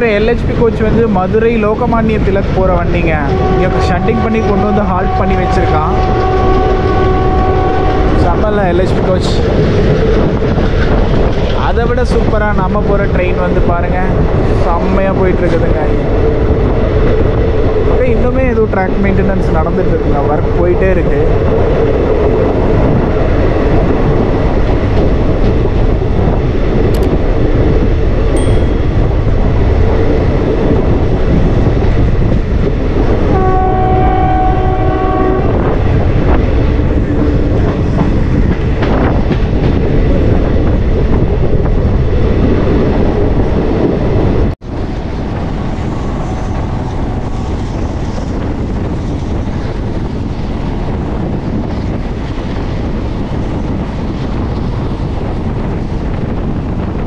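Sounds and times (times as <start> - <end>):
train rumbling on rails: 0.0 - 57.0
locomotive horn blast: 3.3 - 8.2, 33.3 - 35.7.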